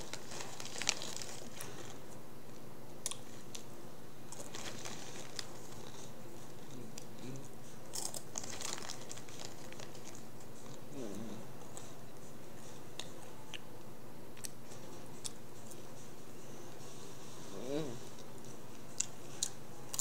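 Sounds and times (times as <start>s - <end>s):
chip bag crinkling: 0.0s - 2.0s, 4.3s - 6.1s, 7.9s - 10.3s
chips being chewed: 0.0s - 3.7s, 4.3s - 11.9s, 18.1s - 20.0s
steady low hum: 0.0s - 20.0s.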